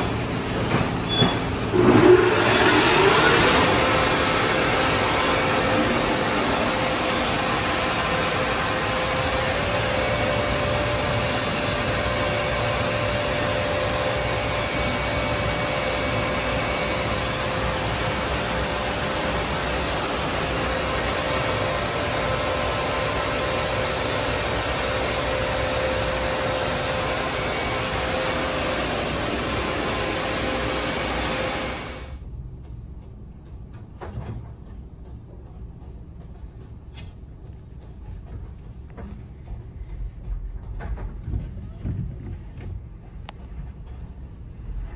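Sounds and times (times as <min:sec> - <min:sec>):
dryer blowers rushing air: 0:00.0 - 0:32.4.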